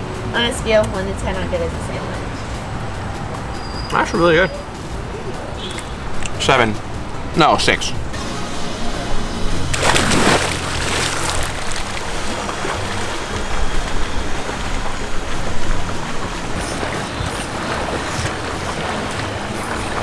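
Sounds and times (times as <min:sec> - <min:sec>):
swimmer splashing in pool water: 0:09.7 - 0:20.0.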